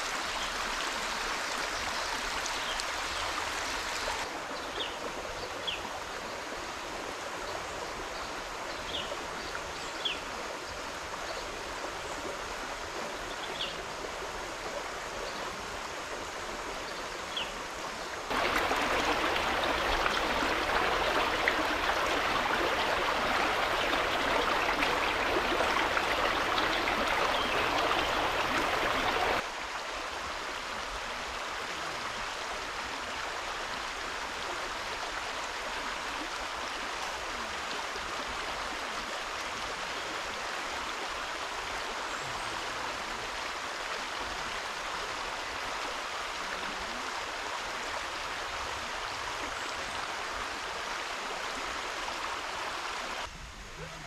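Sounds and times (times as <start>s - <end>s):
water rushing: 0.0s - 54.0s.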